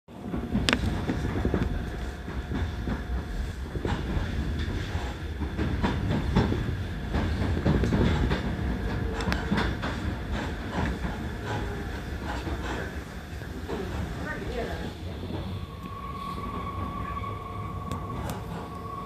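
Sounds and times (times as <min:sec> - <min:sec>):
train running gear rumble: 0:00.1 - 0:19.0
wheels clicking over rail joints: 0:00.2 - 0:14.6.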